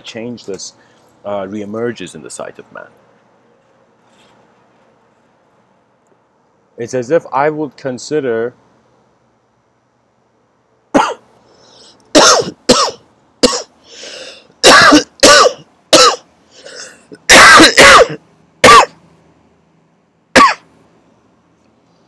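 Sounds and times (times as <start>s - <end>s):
man coughing hard: 10.9s - 11.3s, 12.1s - 13.8s, 14.6s - 19.0s, 20.3s - 20.7s.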